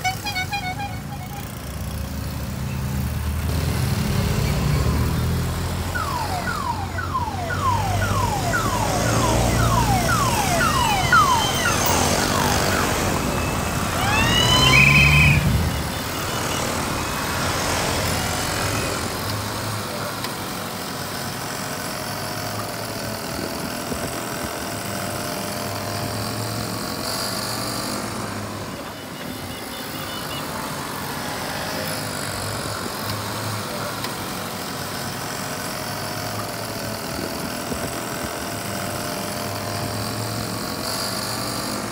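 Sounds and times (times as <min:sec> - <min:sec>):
moped engines passing: 0:00.0 - 0:41.9
siren-like sweeping tone: 0:05.8 - 0:19.0.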